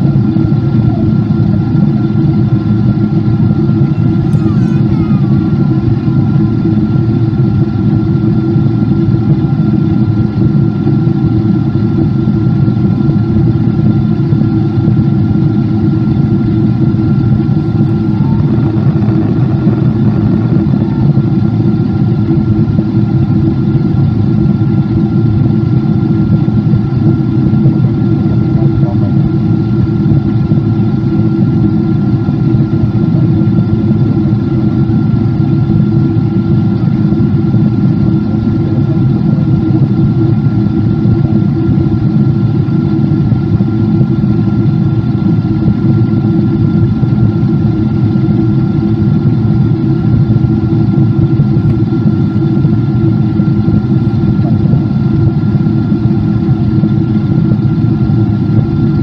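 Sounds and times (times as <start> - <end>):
jet engines droning: 0.0 - 59.0.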